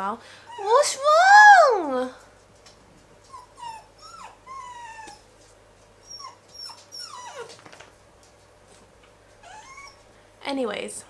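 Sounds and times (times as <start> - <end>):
puppy whining: 0.5 - 1.9, 3.2 - 7.9, 9.4 - 10.1.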